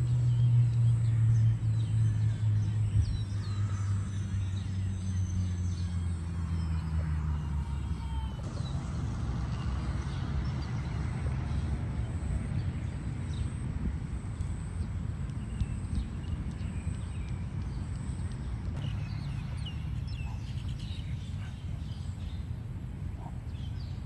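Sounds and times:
steady low rumble: 7.6s - 24.0s.

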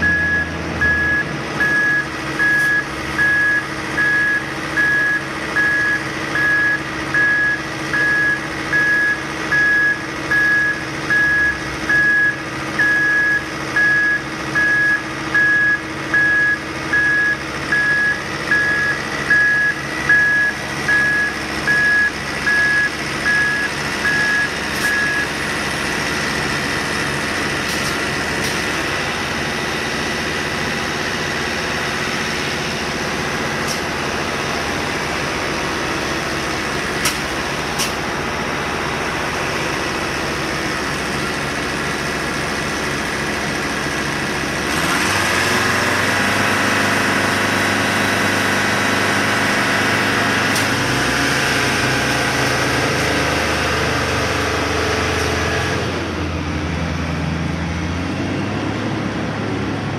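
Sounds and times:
truck reversing alarm beeping: 0.0s - 38.3s, 48.5s - 56.0s
truck engine running: 0.0s - 59.9s.

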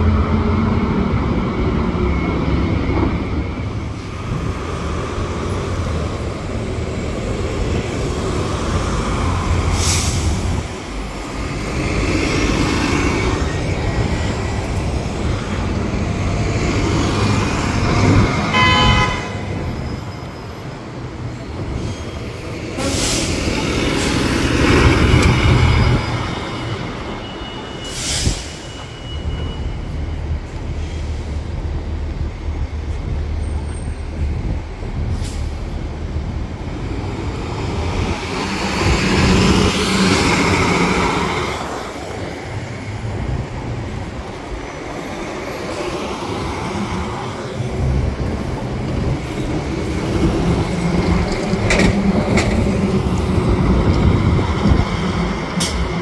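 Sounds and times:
heavy diesel traffic rumbling: 0.0s - 56.0s
air brakes hissing: 9.6s - 10.8s, 22.8s - 24.3s, 27.3s - 29.7s, 35.0s - 35.8s
horn toot: 18.5s - 19.5s.

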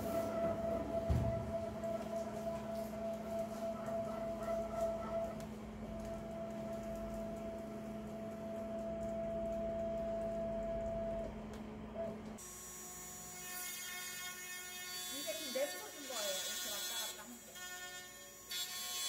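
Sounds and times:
motors whining steadily: 0.0s - 13.4s.

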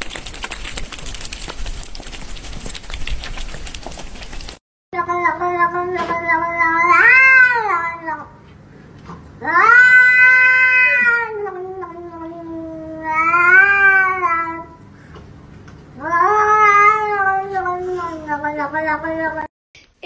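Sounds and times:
cat yowling: 6.5s - 8.1s, 9.4s - 14.7s, 16.0s - 18.6s.

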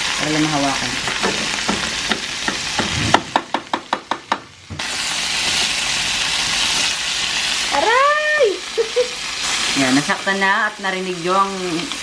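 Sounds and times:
food sizzling in frying pan: 0.0s - 12.0s.

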